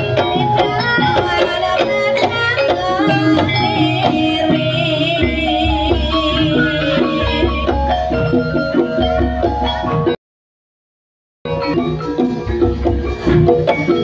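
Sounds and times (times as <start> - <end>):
gongs and metallophones melody: 0.0 - 10.2, 11.5 - 14.0
hand-drum strokes: 0.0 - 10.2, 11.5 - 14.0.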